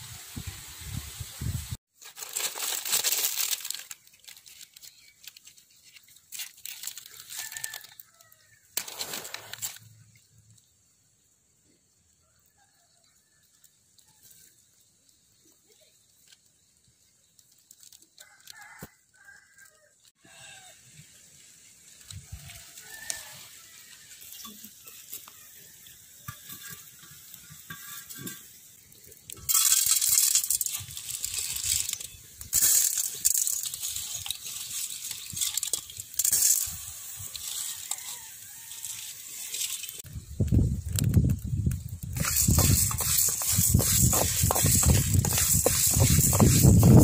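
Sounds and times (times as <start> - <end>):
fire crackling: 0.0 - 10.7, 13.5 - 18.9, 21.0 - 47.0
rooster crowing: 7.2 - 8.7, 18.2 - 20.8, 22.4 - 24.1, 37.4 - 39.4.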